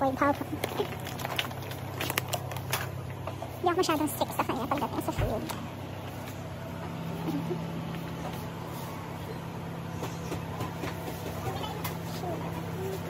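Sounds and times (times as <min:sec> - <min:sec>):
steady low hum: 0:00.0 - 0:13.0
faint clicks and rustles: 0:00.4 - 0:03.5.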